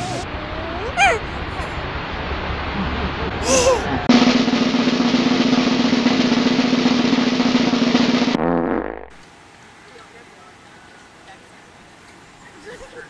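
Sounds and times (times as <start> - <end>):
snare drum roll: 4.1 - 8.4.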